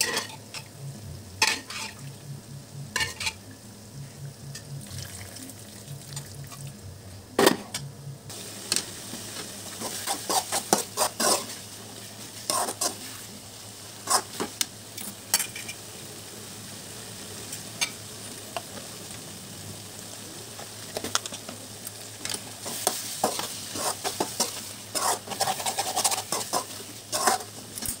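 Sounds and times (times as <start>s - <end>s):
curry sizzling in a pot: 0.0s - 6.8s, 8.3s - 28.0s
metal spoon scraping a pot: 1.4s - 2.0s, 2.9s - 3.4s, 23.8s - 27.5s.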